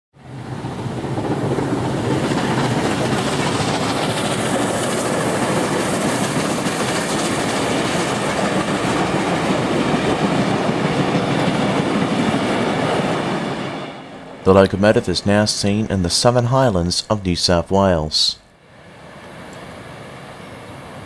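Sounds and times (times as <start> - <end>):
carriages rolling on rails: 0.2 - 14.4
steam locomotive running past: 0.2 - 21.0.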